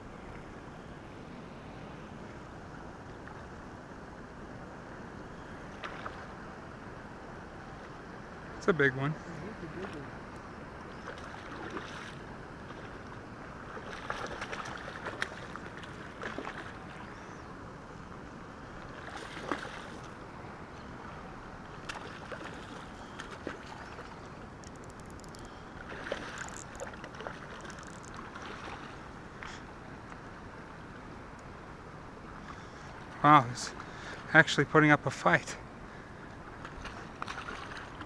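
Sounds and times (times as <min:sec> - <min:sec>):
fish splashing in water: 0:13.7 - 0:16.9, 0:36.7 - 0:38.0.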